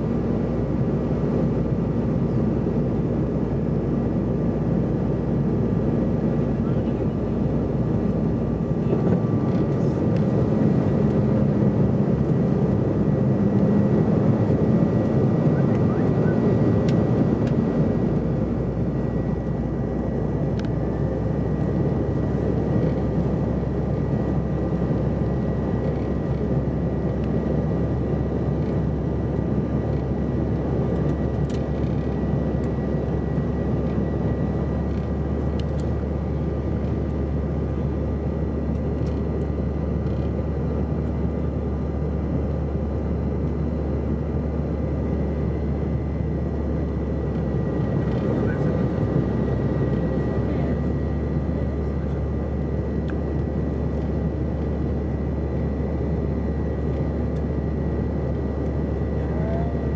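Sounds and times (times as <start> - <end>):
airplane cabin rumble: 0.0 - 59.9
thin steady whine: 13.8 - 59.9.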